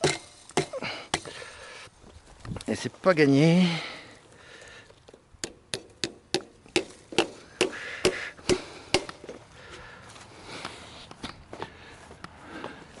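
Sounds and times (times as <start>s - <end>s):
hammer blows: 5.4s - 9.3s.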